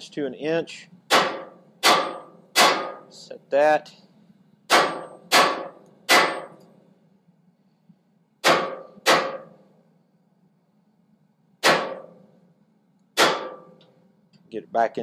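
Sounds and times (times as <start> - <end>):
hammer ringing on hot steel: 1.1 - 3.1, 4.7 - 6.6, 8.4 - 9.6, 11.6 - 12.2, 13.2 - 13.8.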